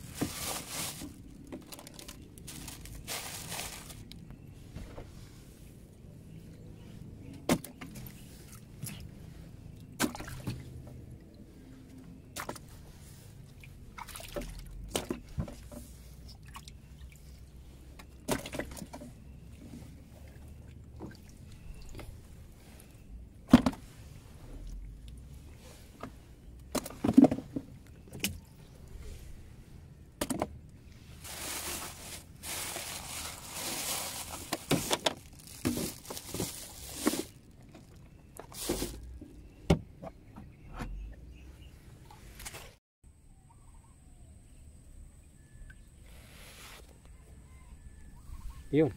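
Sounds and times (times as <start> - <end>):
water dripping and sloshing: 7.5 - 12.7, 13.4 - 22.9.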